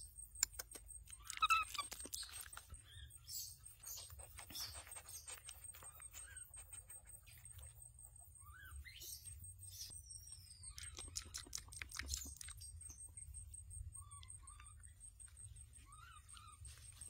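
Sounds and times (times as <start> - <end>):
chewing: 0.4 - 8.0, 10.7 - 13.2
baby monkey squeaky calls: 1.1 - 6.7, 15.8 - 17.0.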